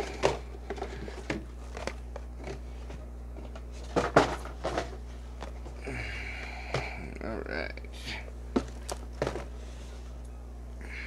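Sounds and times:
cardboard boxes tapping and scraping: 0.0 - 5.6, 8.5 - 9.5
low steady hum: 0.0 - 11.0.

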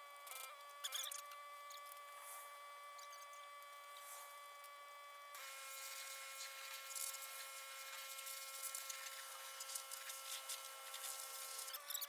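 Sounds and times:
pressure washer whine: 5.4 - 11.7.

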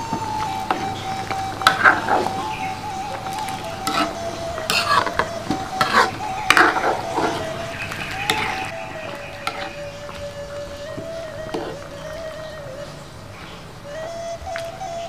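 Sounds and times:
background music: 0.0 - 15.0
spoon scraping metal wok: 1.6 - 2.4, 3.8 - 8.7, 9.4 - 9.8, 11.5 - 11.8.

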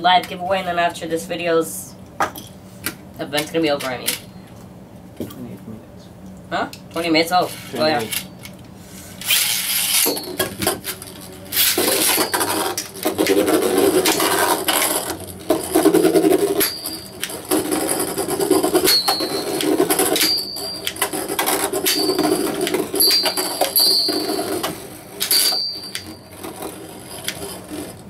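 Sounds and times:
spinning tops whirring and scraping: 9.1 - 28.0.

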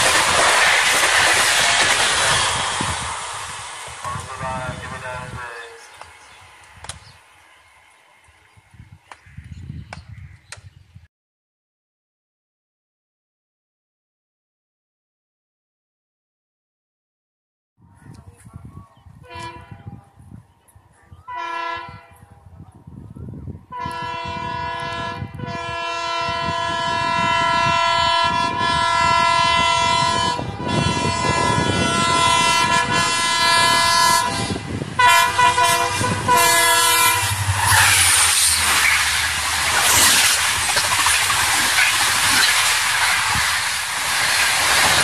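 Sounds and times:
train rumbling past: 0.0 - 9.2, 23.8 - 45.0
locomotive air horn blasts: 19.2 - 20.0, 21.3 - 22.2, 23.7 - 40.6.

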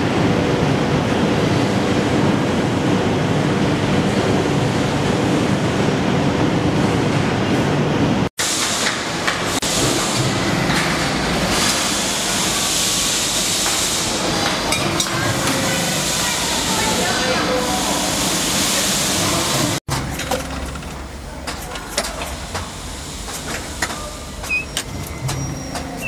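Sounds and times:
factory machinery hum and hiss: 0.0 - 26.0
hissy shop-floor noise: 8.4 - 26.0.

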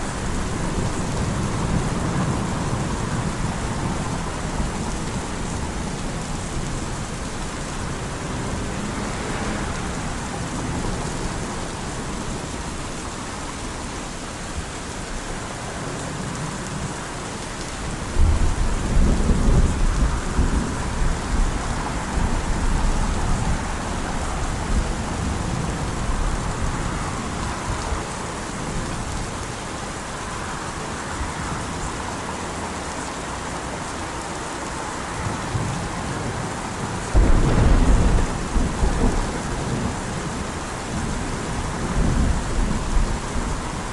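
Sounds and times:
steady rainfall: 0.0 - 43.9
rolling thunder: 18.1 - 26.8, 35.5 - 43.9.

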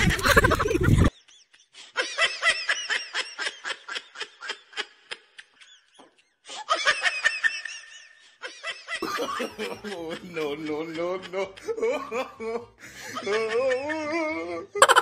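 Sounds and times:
person laughing high-pitched: 0.0 - 1.2, 11.5 - 15.0.

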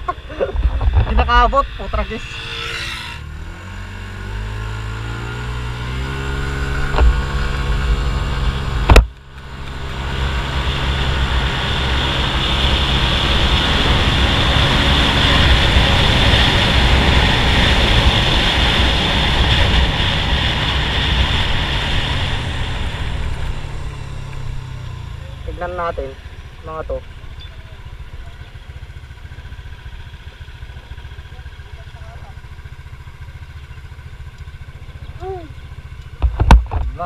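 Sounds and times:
wind rush on microphone: 0.0 - 2.2, 11.0 - 23.7
scooter engine accelerating: 0.0 - 37.0.

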